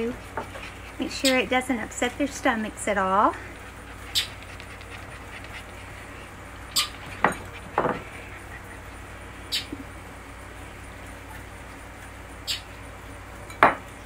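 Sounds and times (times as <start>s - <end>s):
ceramic bowls knocking: 7.0s - 8.0s, 13.5s - 13.8s.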